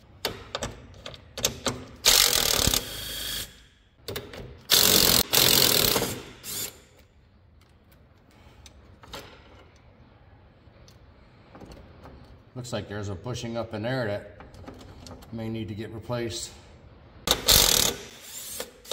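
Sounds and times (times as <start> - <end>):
impact wrench hammering: 4.1 - 6.8, 17.3 - 18.9.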